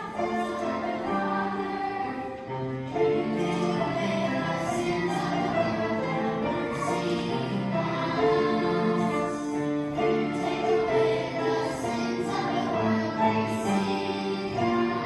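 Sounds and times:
choir singing a hymn: 0.0s - 15.0s
instrumental accompaniment: 0.0s - 15.0s.

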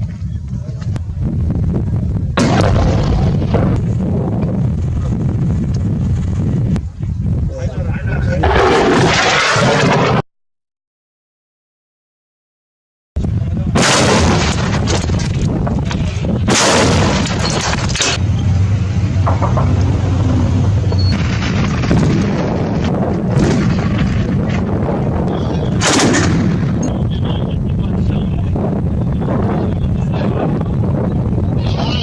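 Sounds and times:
low rumble: 0.0s - 10.2s, 13.2s - 32.0s
artillery and gunshots: 2.4s - 4.4s, 8.4s - 10.2s, 13.7s - 18.2s, 20.6s - 27.4s.

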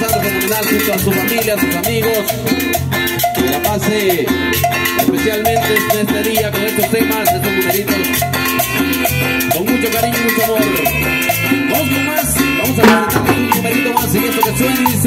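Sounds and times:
loud percussion accent: 0.0s - 15.0s
tropical dance band playing: 0.0s - 15.0s
metal guiro scraping: 12.8s - 14.5s.

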